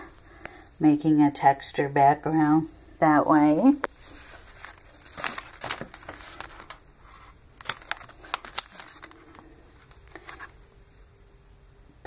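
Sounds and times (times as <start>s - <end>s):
paper rustling and crinkling: 3.9s - 10.6s.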